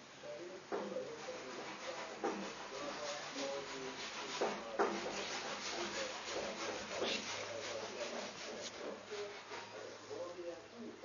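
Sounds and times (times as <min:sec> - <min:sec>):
cat fur rubbing on fleece blanket: 0:01.1 - 0:10.2.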